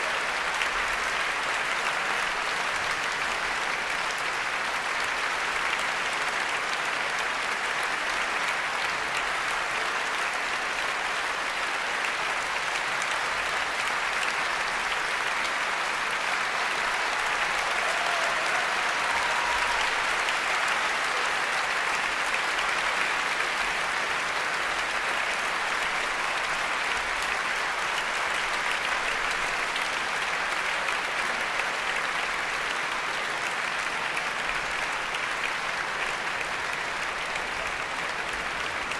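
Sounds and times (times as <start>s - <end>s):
audience applauding: 0.0s - 38.9s.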